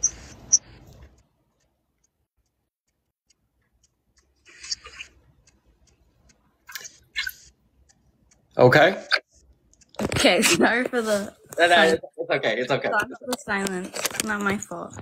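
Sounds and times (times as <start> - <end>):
faint even ticking: 7.5 - 8.8.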